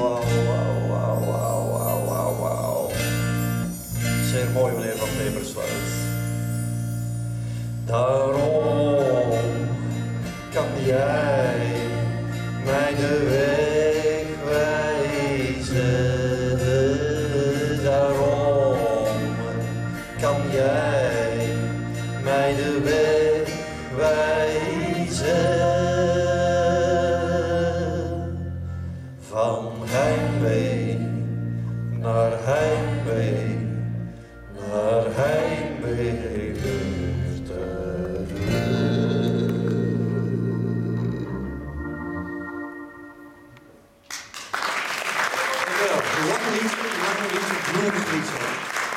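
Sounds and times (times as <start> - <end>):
man singing: 0.0 - 3.2, 4.2 - 5.9, 7.9 - 28.5, 29.2 - 31.4, 32.0 - 33.9, 34.5 - 41.7
acoustic guitar: 0.0 - 44.0
steady low accompaniment: 4.0 - 44.0.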